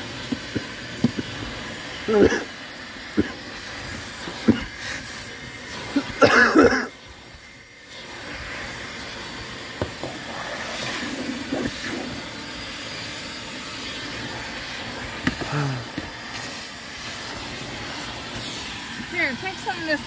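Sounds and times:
shop vac suction hiss: 0.0s - 20.0s
vacuum nozzle knocking: 0.2s - 1.4s, 9.7s - 12.1s, 15.1s - 16.5s.

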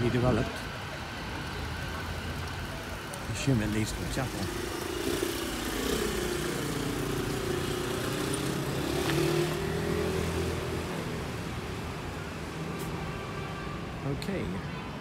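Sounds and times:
vehicle engine passing: 3.7s - 11.5s.

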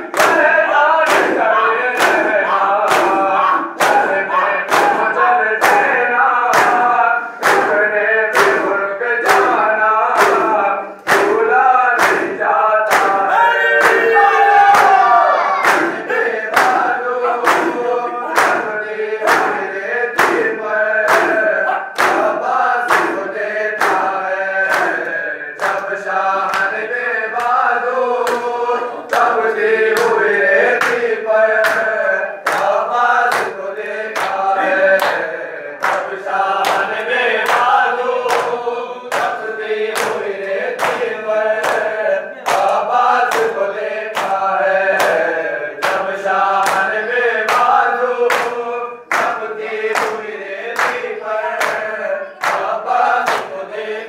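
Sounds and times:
men chanting together: 0.0s - 54.0s
hands slapping on chests: 0.1s - 9.6s, 10.2s - 11.4s, 12.9s - 14.0s, 15.6s - 20.5s, 22.0s - 26.8s, 34.2s - 41.9s, 44.2s - 53.5s.

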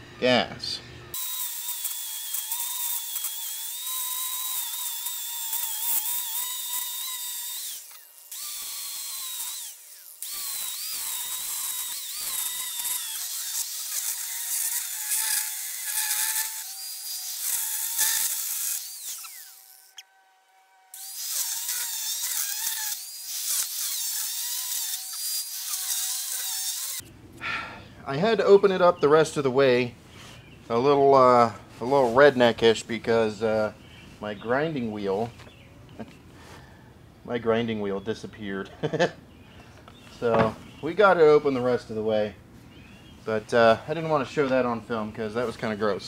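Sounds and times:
angle grinder cutting metal: 1.1s - 27.1s.

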